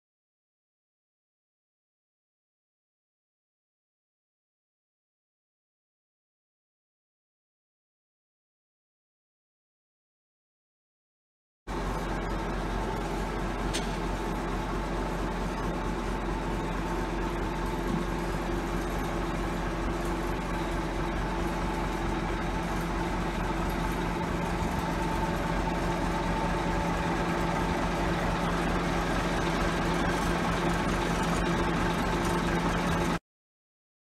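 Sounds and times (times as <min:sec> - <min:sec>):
crane engine running: 0:11.7 - 0:33.2.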